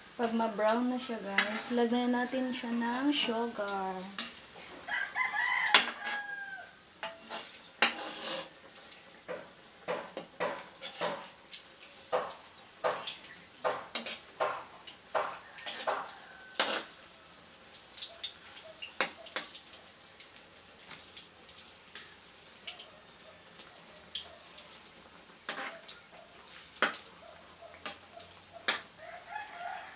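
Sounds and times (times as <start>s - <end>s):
food frying in oil: 0.0s - 29.9s
metal spatula scraping a wok: 1.1s - 1.9s, 5.7s - 6.3s, 7.0s - 8.9s, 10.4s - 12.1s, 13.9s - 14.3s, 15.2s - 17.0s, 25.4s - 25.9s.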